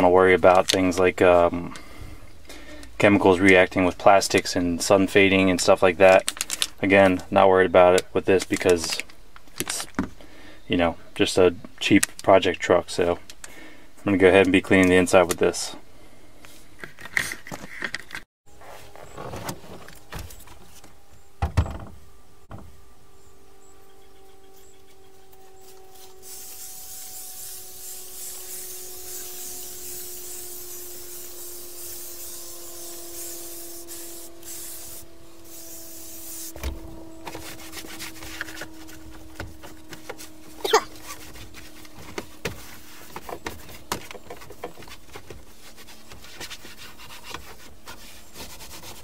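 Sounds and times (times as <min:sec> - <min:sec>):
faint drone of several tones: 0:18.5 - 0:43.8
high hiss: 0:26.0 - 0:36.7.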